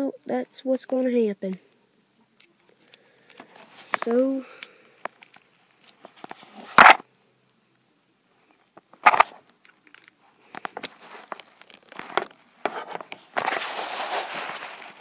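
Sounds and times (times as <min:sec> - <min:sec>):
plastic figures clicking and rustling: 0:09.0 - 0:13.6.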